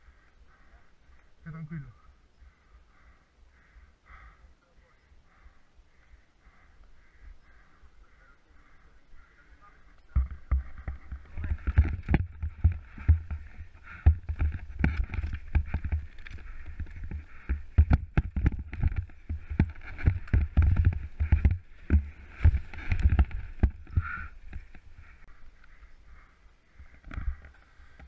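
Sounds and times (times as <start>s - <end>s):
mountain bike rattling over rocks: 10.1s - 25.2s.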